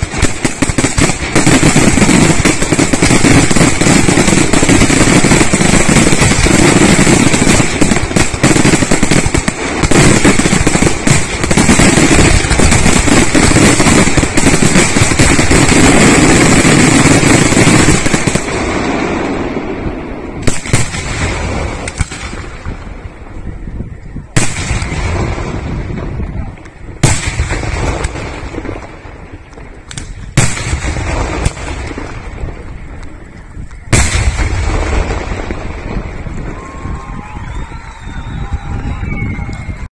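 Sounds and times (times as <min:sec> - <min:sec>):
fireworks bangs and crackle: 0:00.0 - 0:39.9.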